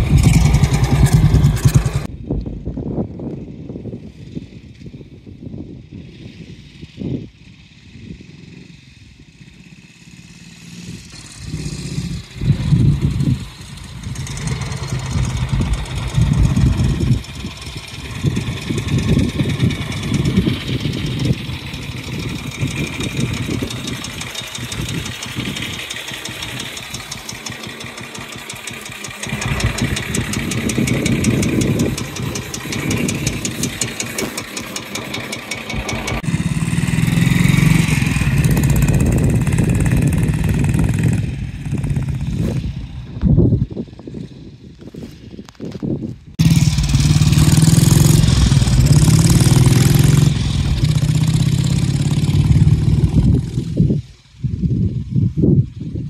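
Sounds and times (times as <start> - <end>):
motorcycle engine: 0.0 - 2.4, 3.0 - 56.0.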